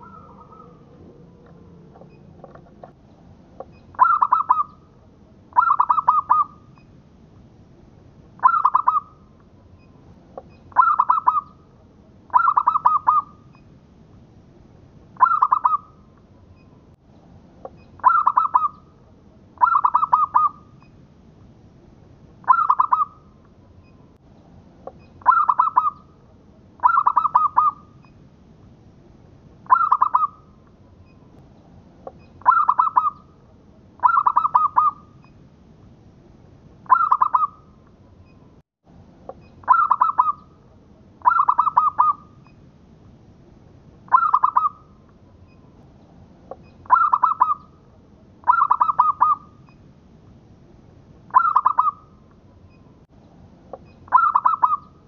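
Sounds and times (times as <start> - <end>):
dove cooing: 0.0 - 2.7, 4.0 - 4.8, 5.6 - 6.6, 8.4 - 9.1, 10.7 - 11.6, 12.3 - 13.3, 15.2 - 15.9, 18.0 - 18.8, 19.6 - 20.6, 22.5 - 23.2, 25.2 - 26.0, 26.8 - 27.8, 29.7 - 30.4, 32.4 - 33.2, 34.0 - 35.0, 36.9 - 37.6, 39.6 - 40.5, 41.2 - 42.3, 44.1 - 44.8, 46.9 - 47.6, 48.4 - 49.5, 51.3 - 52.0, 54.1 - 54.8.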